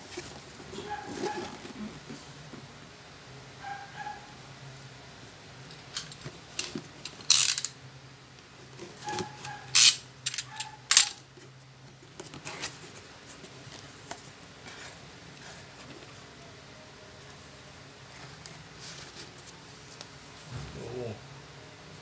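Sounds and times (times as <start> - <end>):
cardboard flaps scraping and clattering: 0.0 - 2.6
cardboard rustling: 0.0 - 2.8, 11.3 - 16.3, 18.0 - 20.2.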